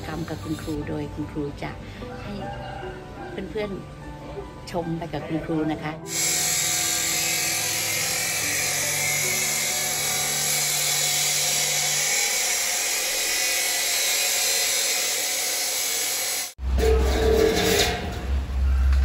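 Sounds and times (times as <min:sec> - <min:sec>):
cut-off saw grinding through steel: 0:06.0 - 0:18.4.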